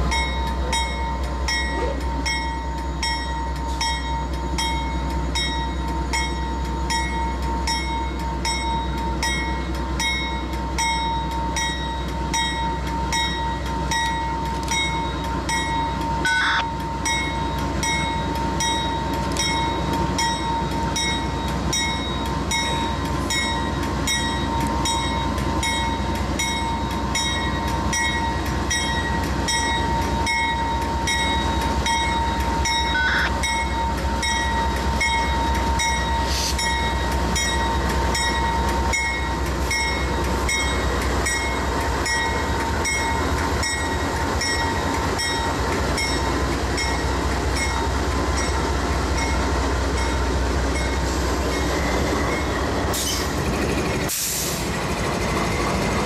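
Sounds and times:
diesel locomotives running: 0:00.0 - 0:56.0
wheels rumbling on rail: 0:00.0 - 0:56.0
high-pitched ring: 0:00.1 - 0:22.1, 0:26.6 - 0:40.8.

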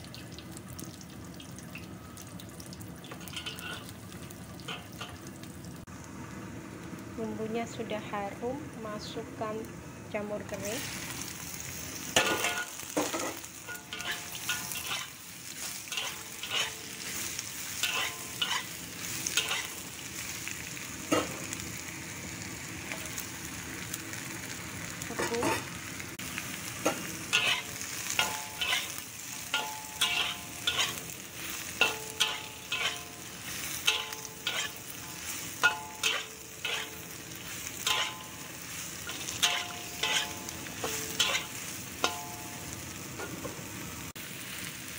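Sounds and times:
food sizzling in oil: 0:00.0 - 0:44.9
metal spatula scraping a wok: 0:03.2 - 0:03.9, 0:12.2 - 0:19.8, 0:26.8 - 0:42.4.

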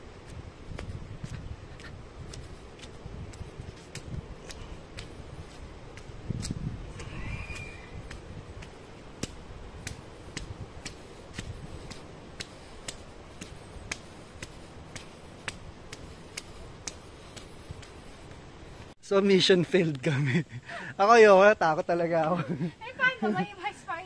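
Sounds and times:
cleated footsteps on concrete: 0:00.0 - 0:19.0.

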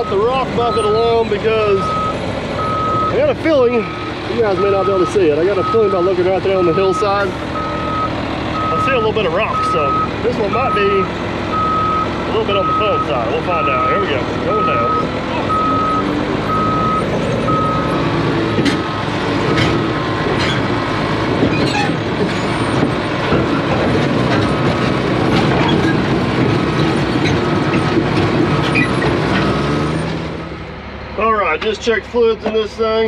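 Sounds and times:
backup alarm beeping: 0:00.0 - 0:01.0, 0:01.8 - 0:03.2, 0:04.5 - 0:18.2
dozer diesel engine running: 0:00.0 - 0:33.0.

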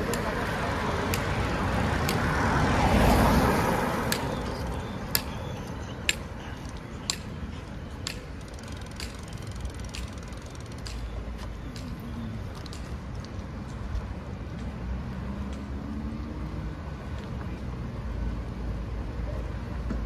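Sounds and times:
passing traffic: 0:00.0 - 0:20.0
bicycle clicking: 0:04.0 - 0:13.5.

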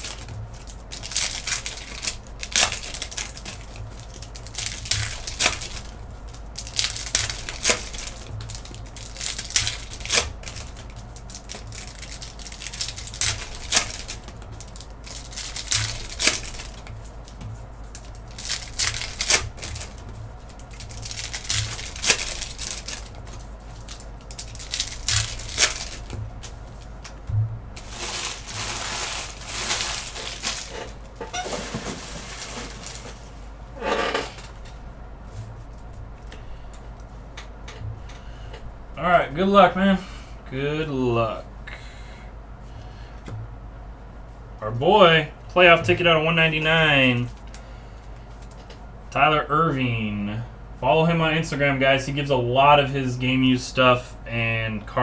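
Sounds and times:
cards rustling: 0:00.0 - 0:27.2, 0:27.8 - 0:33.4
foil wrappers crinkling and tearing: 0:00.0 - 0:27.2, 0:27.8 - 0:33.5.

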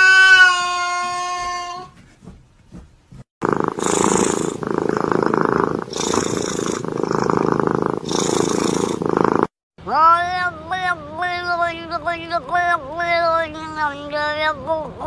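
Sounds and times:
animal breathing: 0:03.4 - 0:09.6
tiger cub purring: 0:03.4 - 0:09.6.

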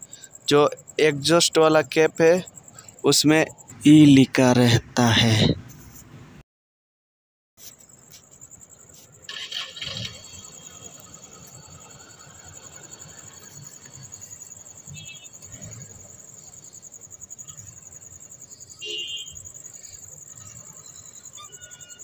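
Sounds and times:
high-pitched insect-like trill: 0:07.6 - 0:22.0.

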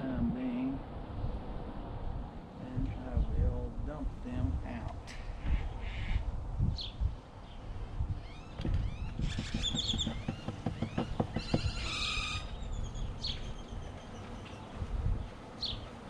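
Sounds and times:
birds chirping and calling: 0:05.0 - 0:16.0
wooden hive frames knocking: 0:08.6 - 0:12.4.

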